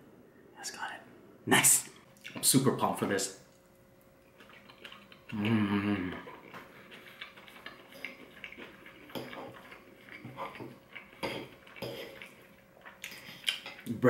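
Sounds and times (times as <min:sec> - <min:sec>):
man humming with food: 0:05.3 - 0:06.4.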